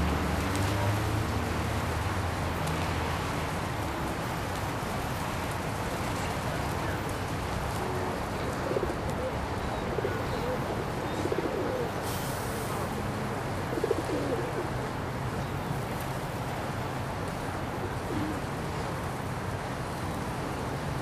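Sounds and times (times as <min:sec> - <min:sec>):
background hiss and rumble: 0:00.0 - 0:21.0
pigeons cooing: 0:07.8 - 0:12.0, 0:13.6 - 0:14.9, 0:17.8 - 0:18.5.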